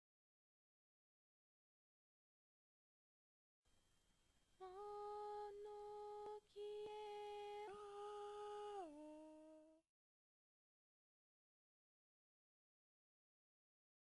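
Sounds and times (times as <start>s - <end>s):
person humming: 4.6s - 9.8s.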